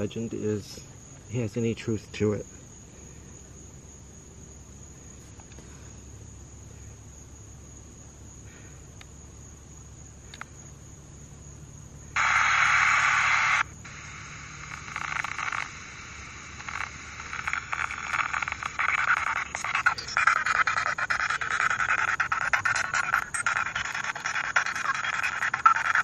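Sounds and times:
night insects trilling: 0.0s - 26.0s
choppy radio broadcast fragments: 12.2s - 26.0s
radio scanner static bursts: 12.2s - 26.0s.

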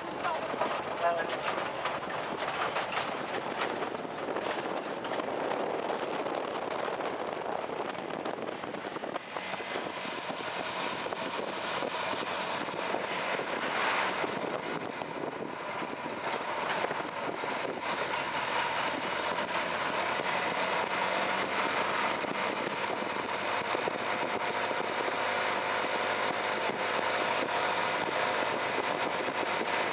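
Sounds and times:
wind and road noise: 0.0s - 29.9s
small engine running: 7.0s - 29.9s.

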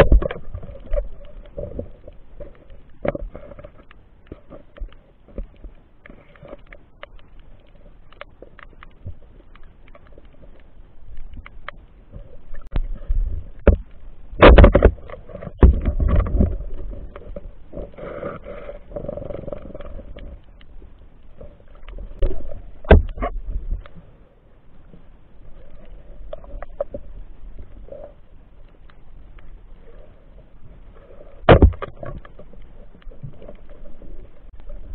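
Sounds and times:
muffled underwater knocks: 13.6s - 16.6s, 22.2s - 23.8s.

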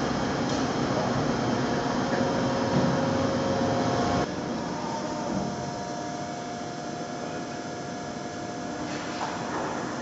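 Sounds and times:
machinery hum and hiss: 0.0s - 10.0s.

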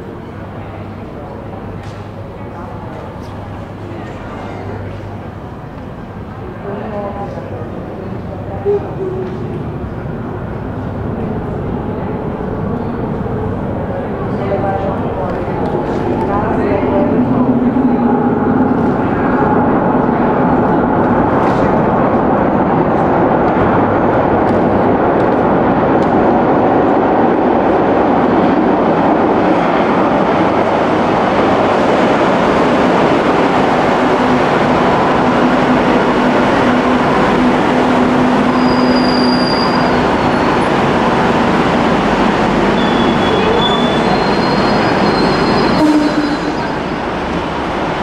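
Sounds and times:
train wheels rumbling on rails: 0.0s - 48.0s
high wheel squeals: 38.4s - 40.5s, 42.8s - 47.0s.

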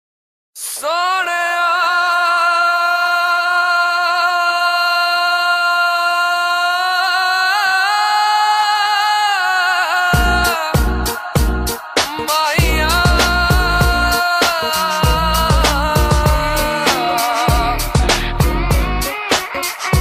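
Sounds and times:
person singing solo: 0.6s - 20.0s
heavy drum beat: 10.2s - 20.0s.

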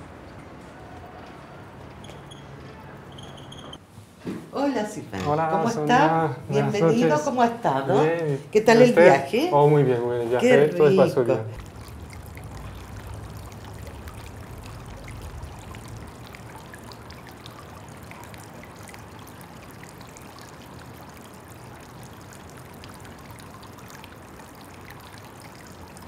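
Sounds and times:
water trickling into pond: 7.9s - 9.4s, 11.5s - 26.0s
low hum: 11.6s - 18.3s.

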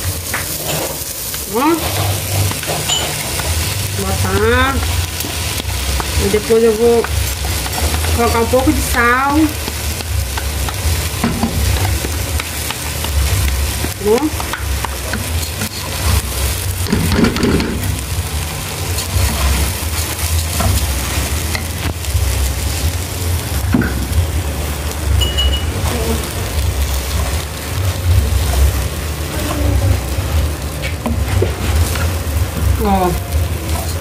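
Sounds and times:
rice sizzling in oil: 0.0s - 34.0s
wooden spoon scraping: 1.7s - 3.7s.

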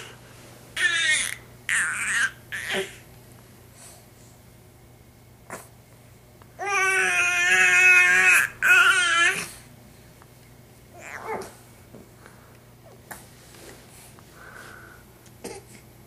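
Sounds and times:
baby crying: 6.6s - 9.5s.

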